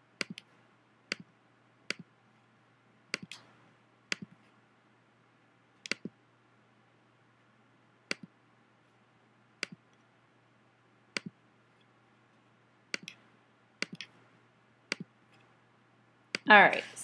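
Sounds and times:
computer mouse button clicks: 5.8s - 6.1s, 12.9s - 13.2s.

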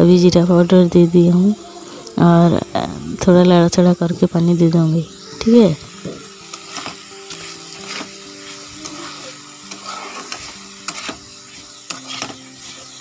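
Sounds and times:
vegetables sizzling in oil: 0.0s - 13.0s
metal spatula scraping wok: 5.2s - 13.0s.

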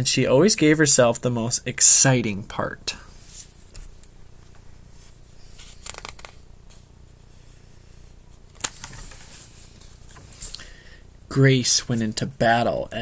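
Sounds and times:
low room hum: 0.0s - 13.0s
page turning rustle: 5.0s - 6.9s, 8.5s - 10.5s.

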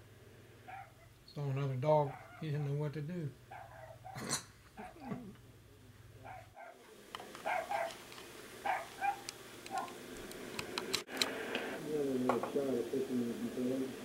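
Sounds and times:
dog barking: 0.7s - 1.2s, 2.0s - 2.8s, 3.5s - 5.2s, 6.2s - 6.8s, 7.4s - 8.0s, 8.6s - 10.0s.

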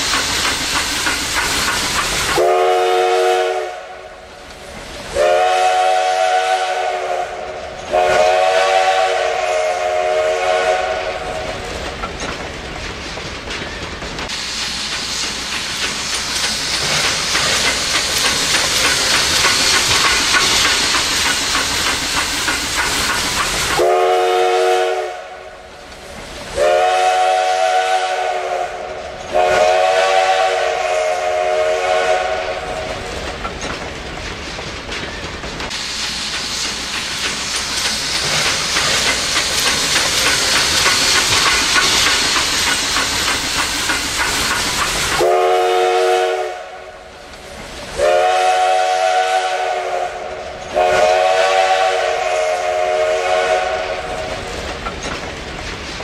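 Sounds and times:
wheels clacking over rail joints: 0.0s - 3.0s, 11.0s - 24.1s, 32.3s - 45.9s, 53.3s - 56.0s
train coaches rolling past: 0.0s - 56.0s
steam locomotive whistle: 2.3s - 4.2s, 5.1s - 11.5s, 23.7s - 25.6s, 26.5s - 33.0s, 45.1s - 47.0s, 47.9s - 54.4s.

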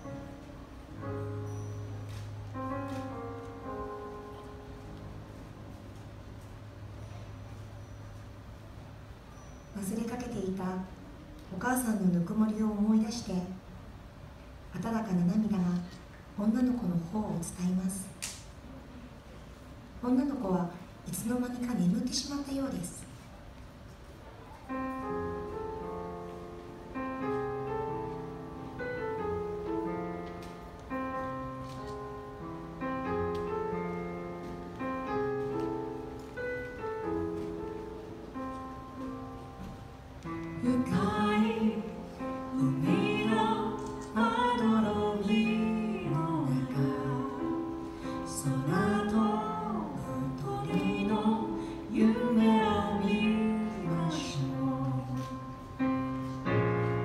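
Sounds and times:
piano playing slow chords: 0.0s - 11.4s, 24.2s - 57.0s
woman singing: 40.6s - 55.6s.

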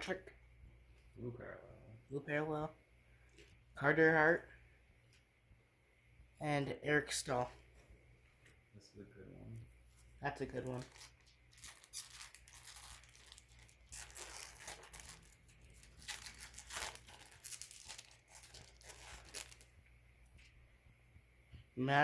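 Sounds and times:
plastic wrapper tearing and crinkling: 10.4s - 19.7s.

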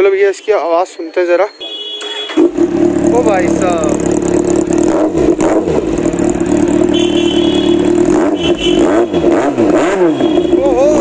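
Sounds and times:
motorcycle engine idling: 2.3s - 9.2s.

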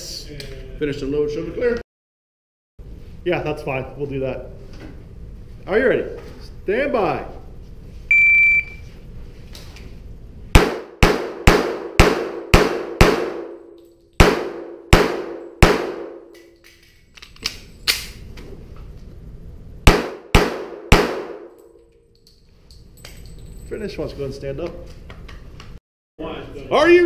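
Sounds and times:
shot timer beep: 8.1s - 8.8s
pistol shots echoing indoors: 10.5s - 16.9s, 19.8s - 22.0s.

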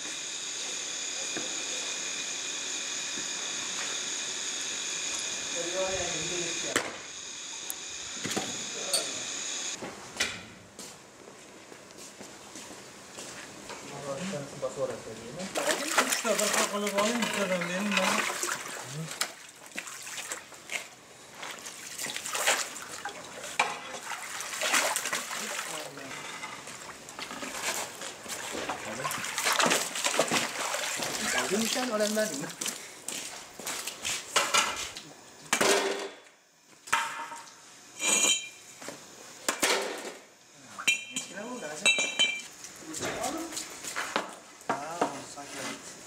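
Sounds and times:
water splashing and trickling: 15.6s - 20.5s, 21.4s - 26.0s, 28.9s - 32.7s.

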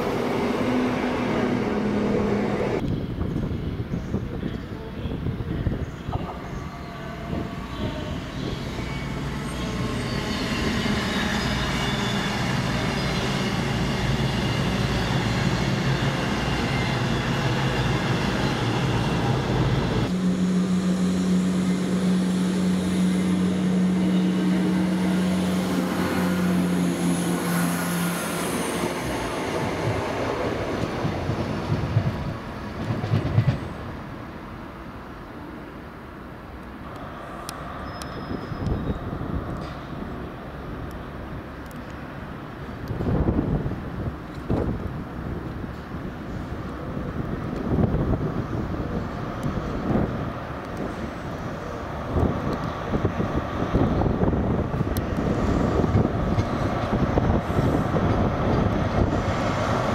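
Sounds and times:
diesel train engine drone: 0.0s - 59.9s
high squeal: 6.5s - 20.1s, 37.0s - 40.0s.

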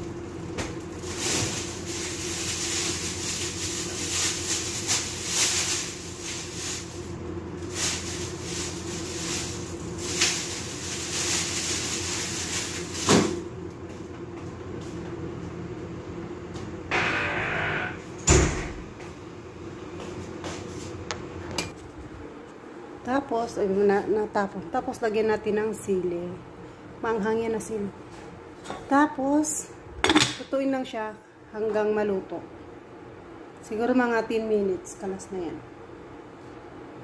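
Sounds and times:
steady mechanical hum: 0.0s - 37.0s
kitchen activity noise: 0.4s - 13.5s, 28.1s - 30.8s.

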